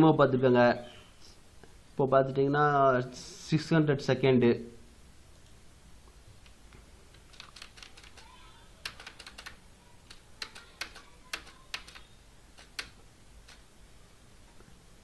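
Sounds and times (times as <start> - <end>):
keyboard keys clicking: 7.1 - 13.6.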